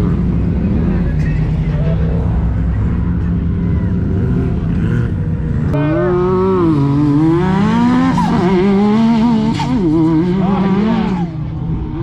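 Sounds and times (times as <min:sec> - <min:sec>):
utility vehicle engines running: 0:00.0 - 0:12.0
engine revving hard: 0:05.8 - 0:11.4.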